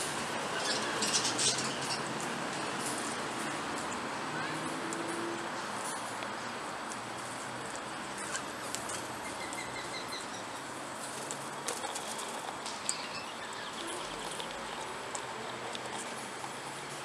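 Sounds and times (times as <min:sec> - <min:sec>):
bird chirps: 0:09.2 - 0:10.6, 0:12.8 - 0:14.1.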